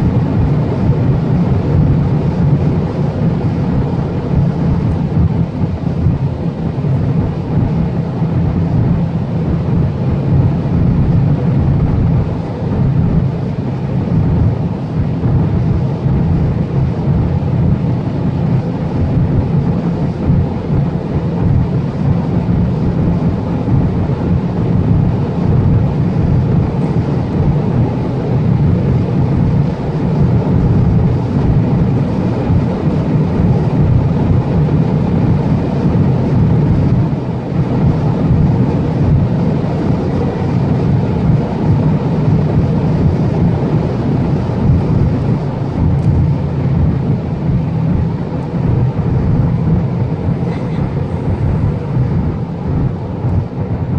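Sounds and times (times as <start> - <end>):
car engine drone: 0.0 - 53.9.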